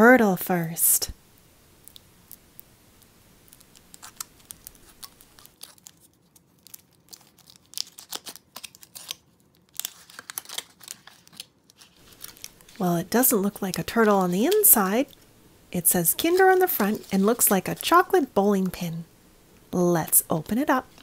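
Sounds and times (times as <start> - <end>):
foil wrapper crinkling: 3.4 - 15.2, 16.0 - 18.2.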